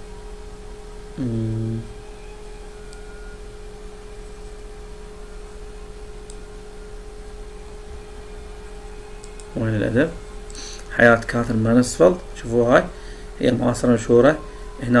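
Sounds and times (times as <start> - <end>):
electrical hum: 0.0 - 15.0
faint constant tone: 0.0 - 15.0
person humming: 1.2 - 2.0.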